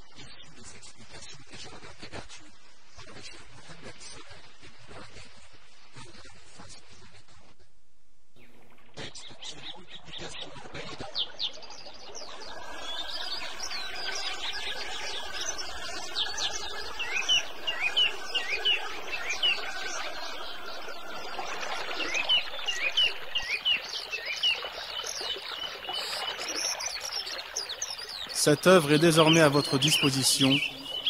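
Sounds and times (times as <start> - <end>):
small birds chirping: 8.4 - 31.0.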